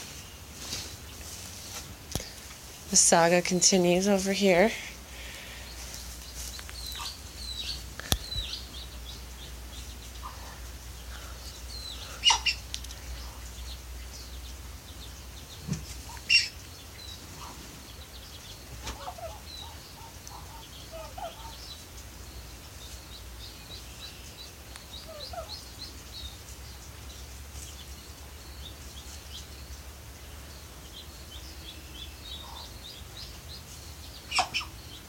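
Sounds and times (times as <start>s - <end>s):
high bird chirps: 11.6s - 14.4s.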